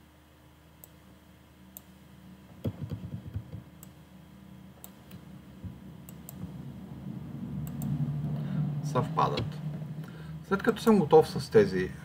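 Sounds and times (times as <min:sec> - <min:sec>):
computer mouse clicks: 0:04.8 - 0:05.2, 0:06.1 - 0:06.5, 0:07.6 - 0:08.0.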